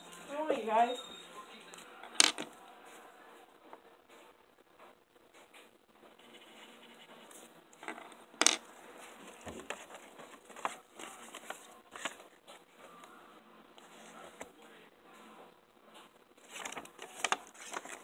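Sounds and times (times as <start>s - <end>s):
paper rustling and crinkling: 9.0s - 12.8s, 15.9s - 18.0s.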